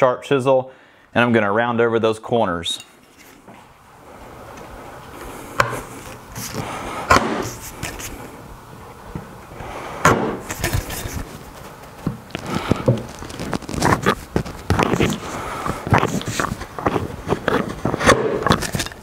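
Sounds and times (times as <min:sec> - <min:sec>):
chisel crackling through wood: 0:12.3 - 0:19.0.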